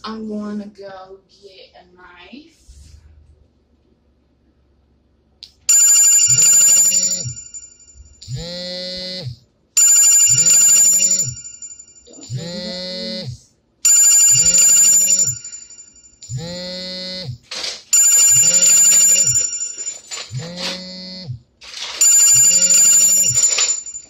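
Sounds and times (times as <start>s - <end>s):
phone ringtone: 5.7s - 9.2s, 9.8s - 13.2s, 13.9s - 17.3s, 17.9s - 21.2s, 22.0s - 24.0s.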